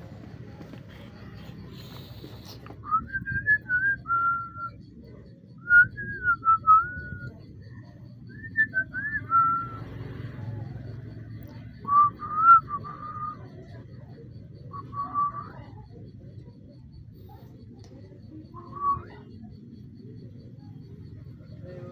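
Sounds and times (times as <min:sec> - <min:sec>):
person whistling a tune: 0:02.8 - 0:04.8, 0:05.6 - 0:07.4, 0:08.3 - 0:09.8, 0:11.8 - 0:13.4, 0:14.7 - 0:15.5, 0:18.6 - 0:19.2.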